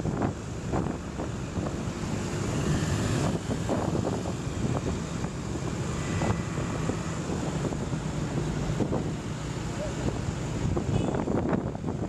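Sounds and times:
traffic engines and tyres rumbling: 0.0s - 12.0s
wind buffeting microphone: 0.0s - 12.0s.

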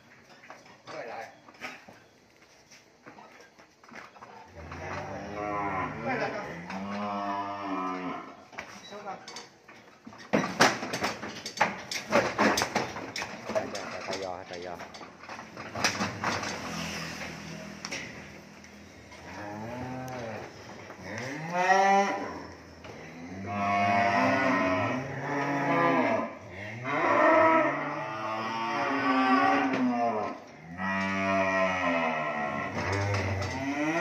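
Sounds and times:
cattle mooing: 4.5s - 8.4s, 19.2s - 34.0s.

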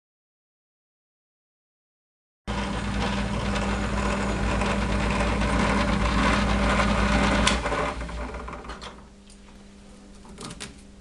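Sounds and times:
harsh cutting noise: 2.5s - 8.7s
drill press motor hum: 2.5s - 9.2s.

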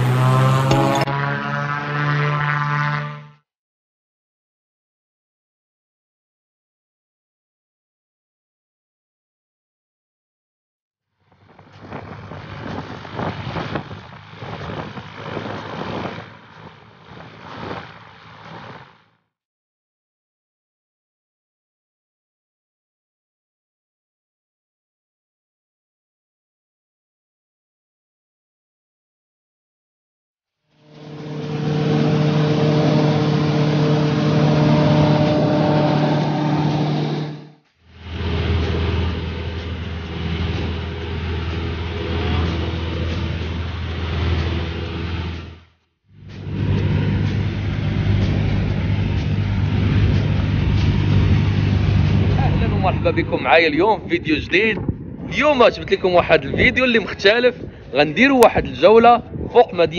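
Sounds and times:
low engine drone: 0.0s - 3.4s, 11.2s - 19.2s, 30.7s - 59.9s
wind buffeting the microphone: 11.4s - 18.9s, 49.9s - 59.9s.

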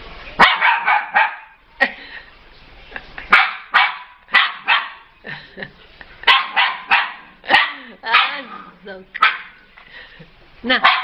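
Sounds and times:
puppy barking: 0.4s - 1.6s, 3.3s - 5.1s, 6.2s - 9.6s, 10.7s - 11.0s.

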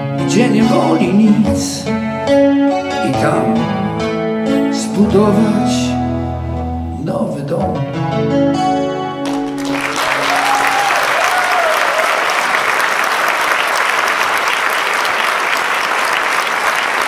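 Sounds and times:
audience applauding and cheering: 9.2s - 17.0s
single wavering cheer: 10.0s - 12.5s.

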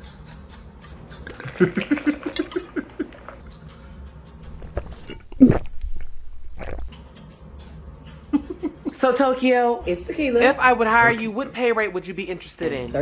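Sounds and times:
liquid glugging from bottle: 1.2s - 3.5s, 4.5s - 6.9s
loud gulp: 4.5s - 5.9s, 6.5s - 6.9s.

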